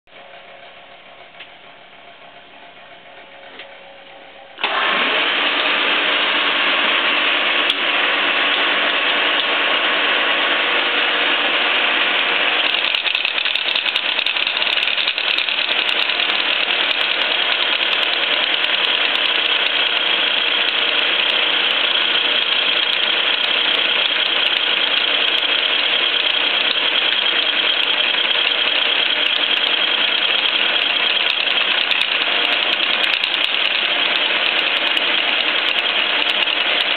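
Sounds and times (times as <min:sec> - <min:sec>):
milling machine running: 0:00.1 - 0:36.9
face mill cutting steel: 0:04.6 - 0:36.9.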